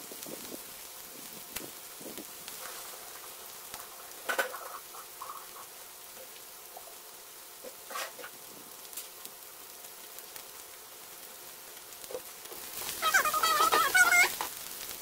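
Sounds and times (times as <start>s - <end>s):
oil sizzling in a frying pan: 0.0s - 15.0s
wavering high-pitched cry: 12.9s - 14.4s.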